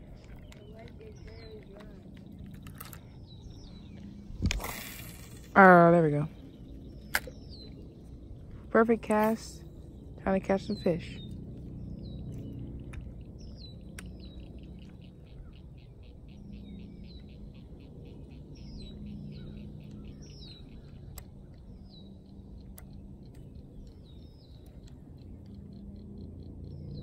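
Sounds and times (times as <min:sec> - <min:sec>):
bird trill: 0:00.0 - 0:27.0
birds chirping: 0:00.0 - 0:27.0
low background hum: 0:00.0 - 0:27.0
faint clicks: 0:19.8 - 0:25.8.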